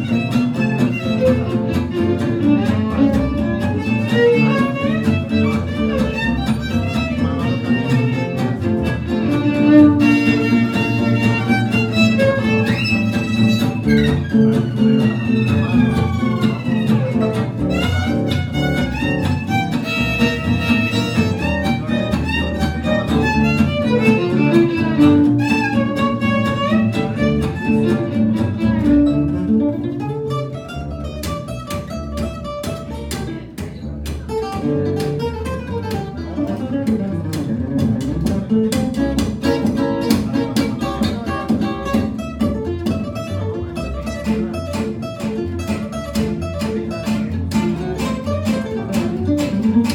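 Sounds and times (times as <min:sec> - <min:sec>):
violin melody: 0:00.0 - 0:32.2
plucked double bass: 0:00.0 - 0:49.9
strummed acoustic guitar: 0:00.0 - 0:49.9.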